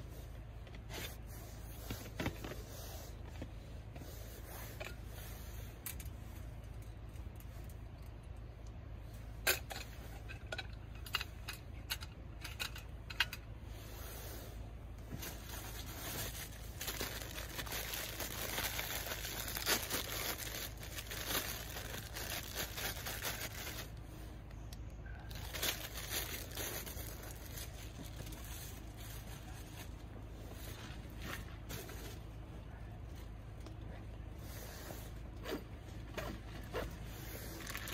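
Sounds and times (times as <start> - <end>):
plastic packaging crinkling: 15.3 - 24.0, 25.3 - 30.1, 37.5 - 37.9.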